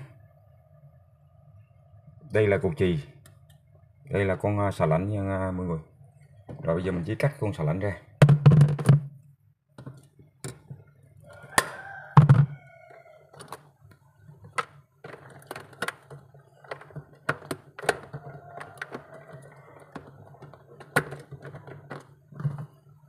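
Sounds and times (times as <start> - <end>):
tools knocking inside freezer: 11.6 - 12.6.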